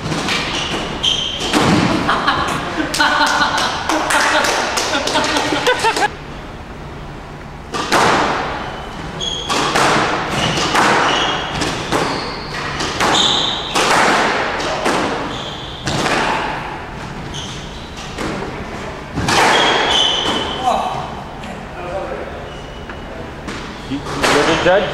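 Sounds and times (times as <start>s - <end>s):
shoes squeaking on court floor: 0.0s - 2.6s, 8.5s - 14.0s, 14.6s - 21.1s, 22.3s - 24.9s
squash ball hits echoing: 0.0s - 6.1s, 7.7s - 17.2s, 18.0s - 21.2s, 23.4s - 24.8s.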